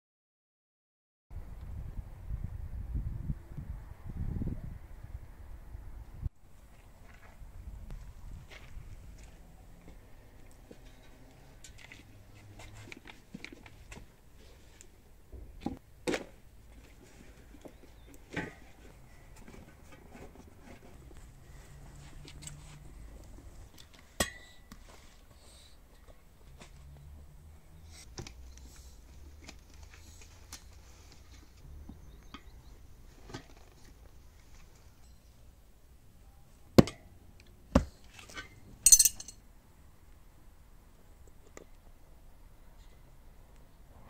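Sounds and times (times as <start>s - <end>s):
tyre lever clinking on wheel rim: 38.8s - 39.4s.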